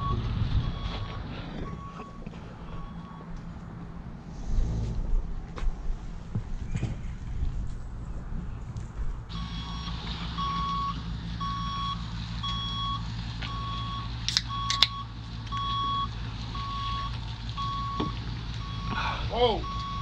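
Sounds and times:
low engine hum: 0.0s - 20.0s
electronic alarm beeping: 13.6s - 18.0s
sharp clicks: 14.3s - 15.0s.

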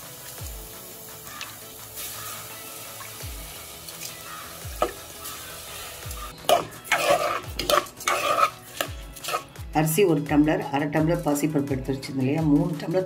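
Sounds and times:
grains frying in ghee: 0.0s - 9.7s
metal spoon scraping a pot: 6.4s - 9.5s.

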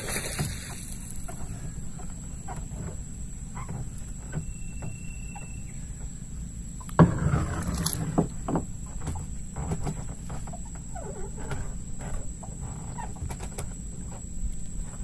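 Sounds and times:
knocks on wooden boat: 7.0s - 10.6s
thump on wooden boat planks: 7.0s - 12.3s.

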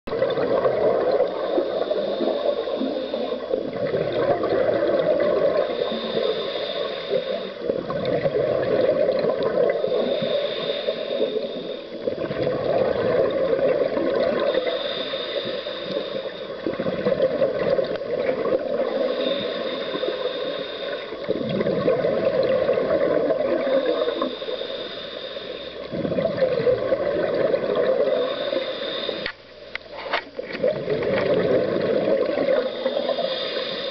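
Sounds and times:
exhaled bubbles gurgling: 0.1s - 33.9s
regulator hissing inhale: 1.2s - 3.8s, 4.4s - 7.9s, 9.2s - 12.3s, 13.3s - 17.0s, 17.6s - 21.5s, 23.3s - 26.2s, 27.7s - 30.0s, 32.3s - 33.9s.

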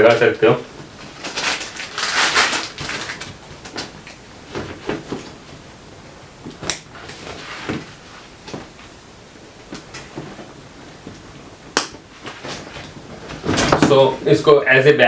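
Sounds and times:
dry bag rustling and crinkling: 0.0s - 5.7s, 12.1s - 14.4s
sharp snap: 6.6s - 6.9s, 11.7s - 12.0s.

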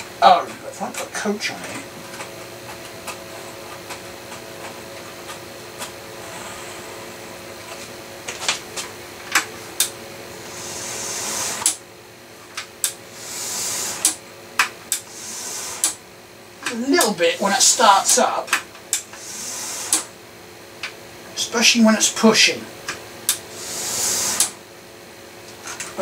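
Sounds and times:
model train motor whirring: 10.5s - 11.8s, 13.1s - 14.2s, 14.9s - 16.0s, 19.1s - 20.1s, 23.5s - 24.5s.

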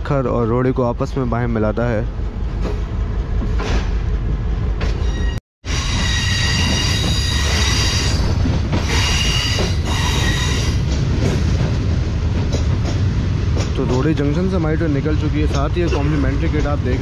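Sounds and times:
train rumbling on track: 0.0s - 17.0s
steel wheels squealing on rails: 4.8s - 11.0s.

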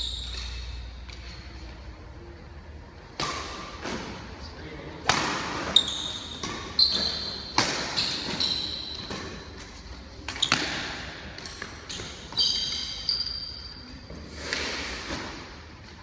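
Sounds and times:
sneaker squeaks on hard floor: 0.0s - 1.4s, 5.3s - 9.7s, 10.3s - 14.3s
rackets hitting shuttlecock: 3.0s - 4.3s, 5.0s - 13.7s.

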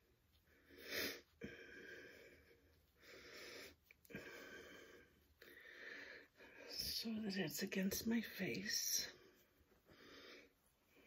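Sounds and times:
breathing: 0.4s - 6.7s, 9.2s - 11.0s.

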